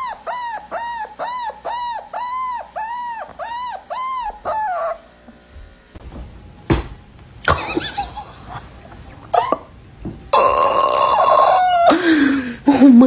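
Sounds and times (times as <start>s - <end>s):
puppy yipping: 0.0s - 5.1s.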